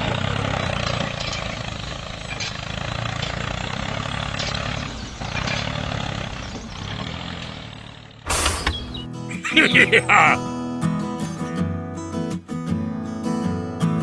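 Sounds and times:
small tractor motor running: 0.0 - 10.4.

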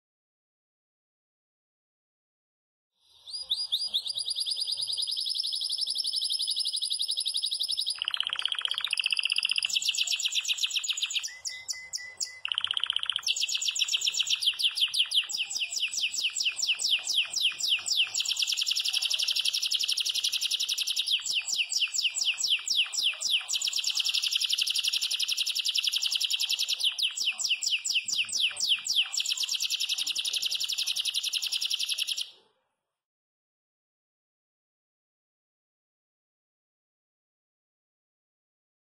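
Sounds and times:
canary singing high trills: 3.2 - 32.4.

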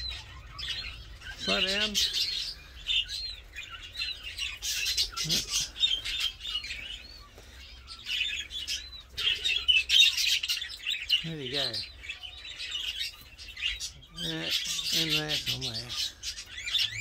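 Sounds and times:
birds chirping and chattering: 0.0 - 17.0.

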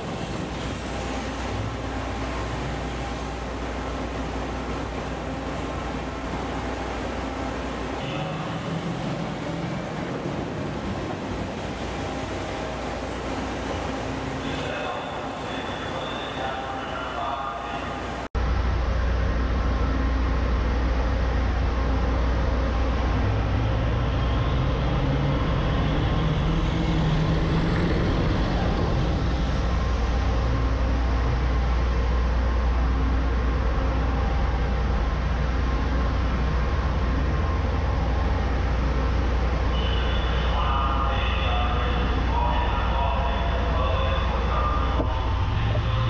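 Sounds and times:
heavy engine rumbling: 0.0 - 46.0
rushing water: 0.0 - 46.0.

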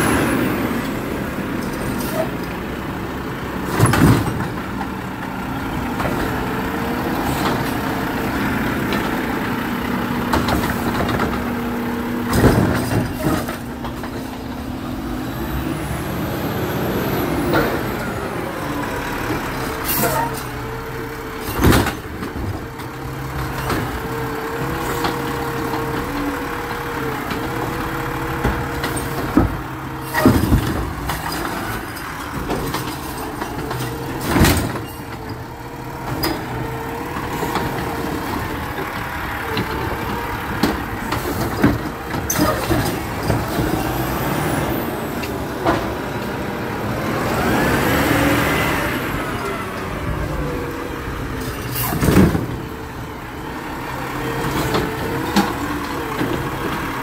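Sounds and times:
truck engine revving: 0.0 - 57.0
metal clanks and knocks: 10.2 - 11.5, 12.2 - 14.5, 28.4 - 44.0.

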